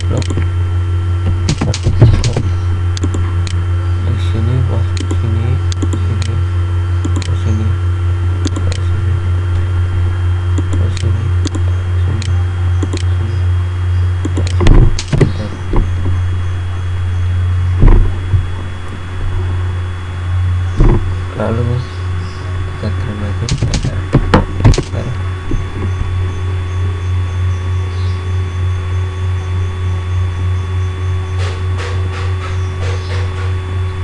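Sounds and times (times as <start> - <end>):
faint whine tones: 0.0 - 34.0
low electrical hum: 0.0 - 34.0
dull thumps: 1.2 - 2.5, 14.6 - 16.2, 17.8 - 18.8, 20.8 - 21.2, 23.5 - 24.9
computer mouse clicks: 1.5 - 2.4, 3.0 - 3.6, 5.0 - 6.4, 7.0 - 7.4, 8.4 - 8.9, 10.6 - 11.6, 12.2 - 13.1, 14.2 - 15.4, 23.5 - 24.0, 24.6 - 25.0.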